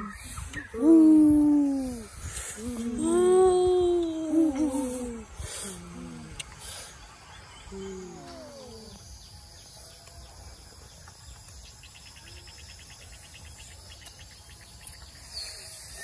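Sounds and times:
insect trilling: 0:00.0 - 0:09.8
child vocal sound: 0:00.7 - 0:06.4.

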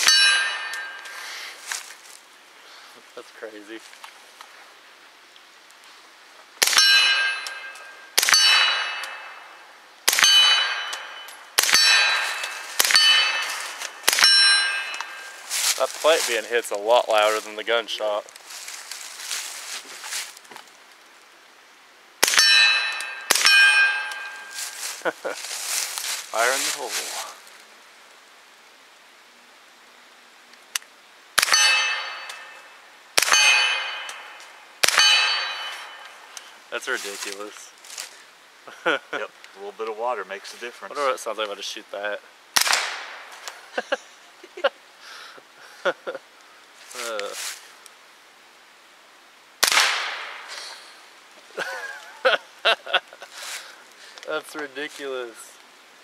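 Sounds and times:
steel plate target clanging: 0:00.0 - 0:01.2, 0:06.6 - 0:16.4, 0:22.2 - 0:25.0, 0:31.4 - 0:36.4
suppressed gunshots: 0:11.6 - 0:13.2, 0:42.6 - 0:43.2, 0:49.6 - 0:50.5.

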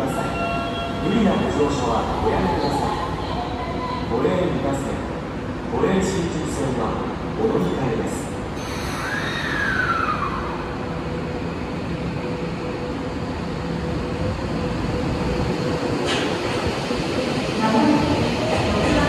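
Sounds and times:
subway train motors whining: 0:00.0 - 0:19.0
train cars rumbling: 0:06.9 - 0:19.0.

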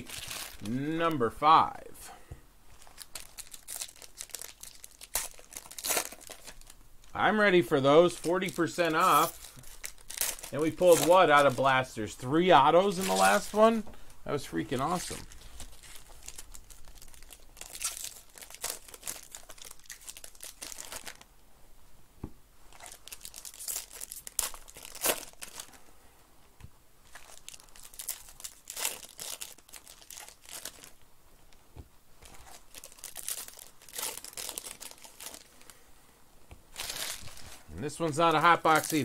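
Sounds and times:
foil wrappers crinkling and tearing: 0:00.0 - 0:01.0, 0:02.8 - 0:11.9, 0:12.6 - 0:13.8, 0:14.6 - 0:21.3, 0:22.7 - 0:25.8, 0:27.0 - 0:31.0, 0:32.2 - 0:35.8, 0:36.7 - 0:39.0.

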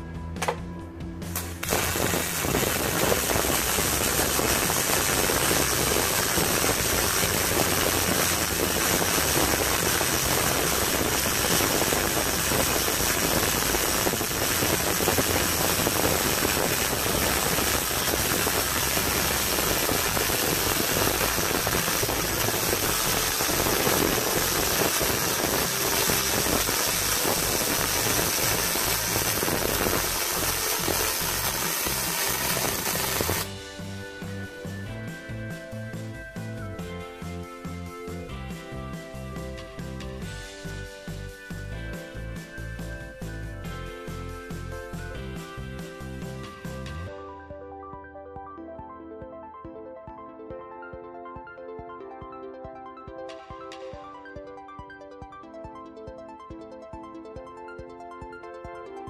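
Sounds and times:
welding arc crackling hiss: 0:01.3 - 0:34.3.

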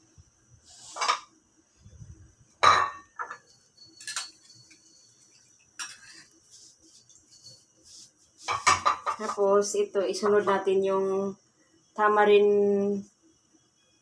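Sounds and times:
dishes clinking and knocking: 0:02.6 - 0:06.3, 0:08.4 - 0:09.5.

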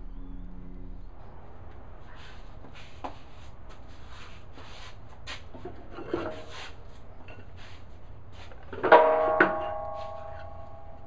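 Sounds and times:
low room hum: 0:00.0 - 0:06.4.

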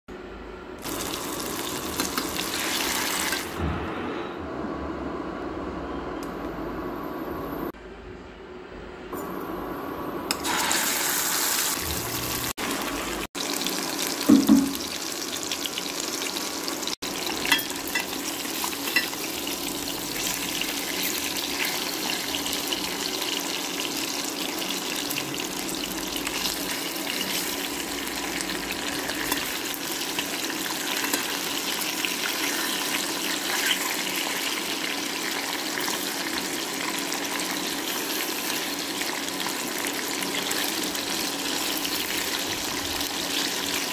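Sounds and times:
fish sizzling in hot oil: 0:00.8 - 0:03.5, 0:10.4 - 0:43.9
loud short knock: 0:14.3 - 0:14.8.

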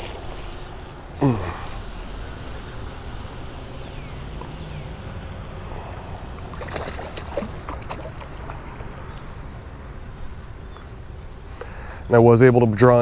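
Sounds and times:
fish splashing at surface: 0:06.4 - 0:08.9.

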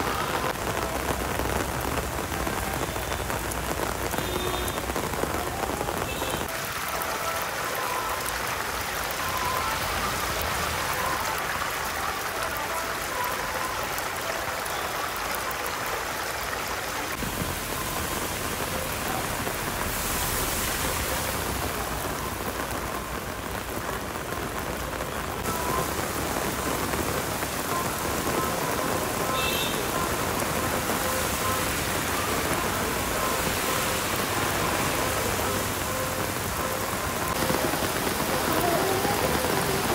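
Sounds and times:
heavy rain on flooded road: 0:00.0 - 0:39.9.

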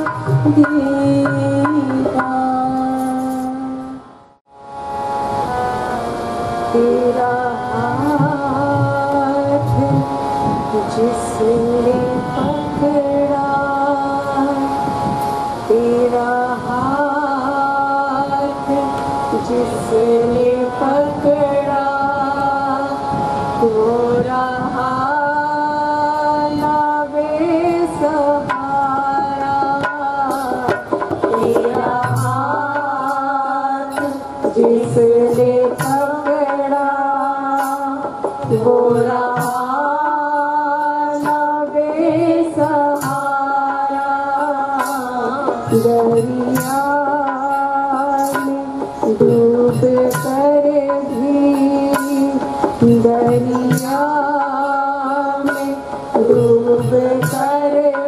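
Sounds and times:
harmonium: 0:00.0 - 0:58.0
women singing a hymn: 0:31.4 - 0:48.6.

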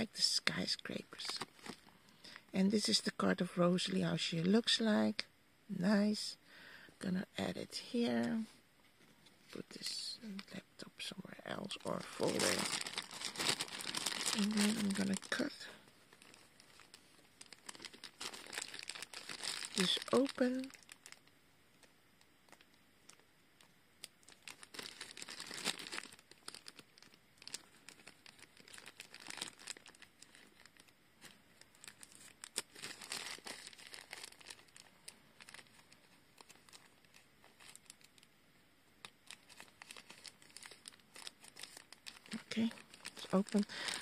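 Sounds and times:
foil crinkling: 0:00.6 - 0:02.4, 0:11.6 - 0:21.3, 0:24.0 - 0:38.3, 0:39.0 - 0:44.0.

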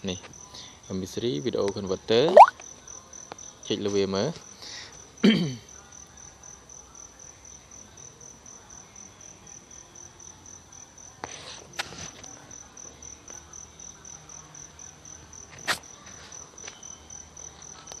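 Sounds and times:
insect chirping: 0:02.2 - 0:02.6.

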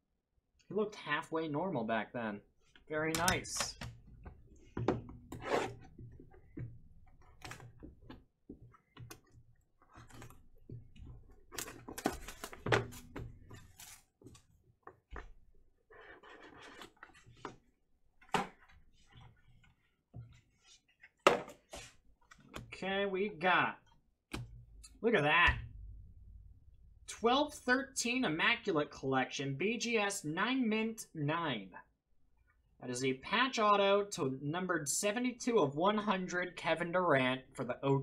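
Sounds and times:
rustling: 0:05.4 - 0:22.5.

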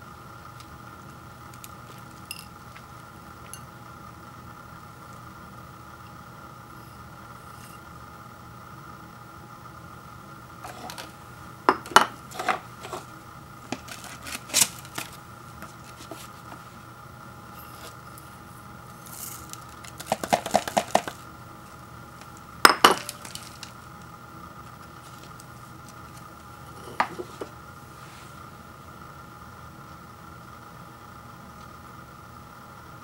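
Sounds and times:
ceramic bowl clinking and knocking: 0:22.7 - 0:23.2.

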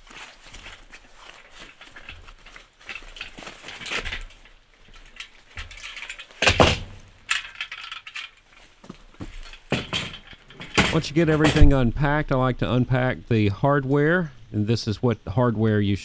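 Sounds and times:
foam wrapping rustling: 0:00.0 - 0:07.3
metal clinking: 0:01.5 - 0:08.6
small knocks: 0:01.6 - 0:11.8.

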